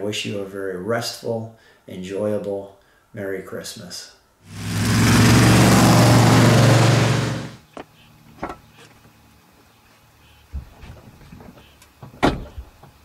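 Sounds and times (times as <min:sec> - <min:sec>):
loud car engine running: 0:04.5 - 0:07.6.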